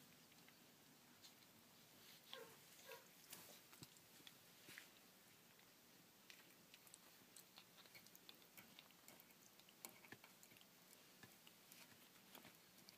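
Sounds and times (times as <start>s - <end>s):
puppy chewing metal pail rim: 5.5s - 12.9s.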